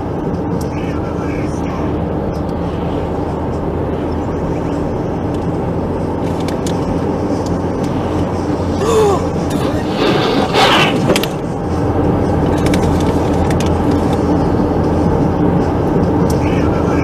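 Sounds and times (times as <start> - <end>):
car engine and road noise: 0.0 - 17.0.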